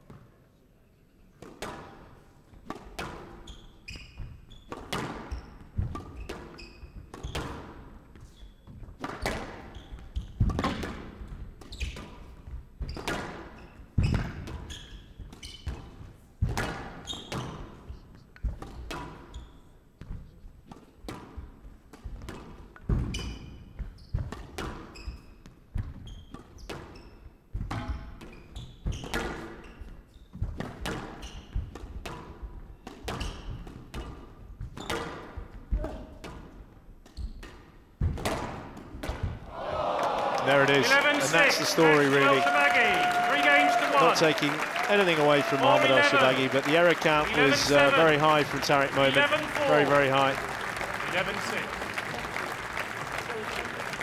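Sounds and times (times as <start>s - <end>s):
shoe squeaks: 3.4s - 7.5s, 9.6s - 10.4s, 11.6s - 12.0s, 12.8s - 15.8s, 17.0s - 17.6s, 23.1s - 24.2s, 24.9s - 25.4s, 26.0s - 30.4s, 31.2s - 31.6s, 33.2s - 33.6s
ball hitting court walls: 4.2s - 7.8s, 8.8s - 17.7s, 37.1s - 39.8s.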